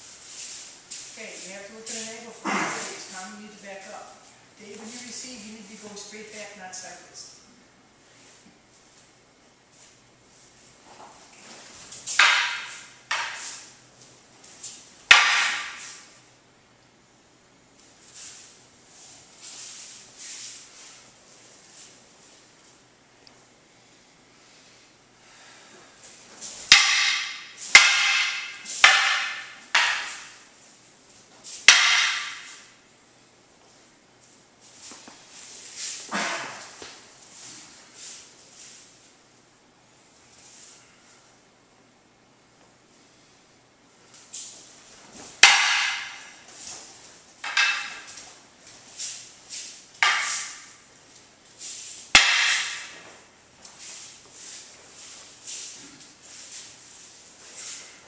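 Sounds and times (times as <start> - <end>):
wooden swords clacking: 11.9 - 13.8, 14.4 - 16.2, 26.5 - 30.5, 31.5 - 32.8, 45.1 - 57.8
wooden staffs knocking together: 12.1 - 13.7, 15.1 - 16.1, 26.6 - 30.5, 31.6 - 32.8, 45.1 - 46.8, 47.4 - 48.3, 50.0 - 50.9, 52.1 - 53.2.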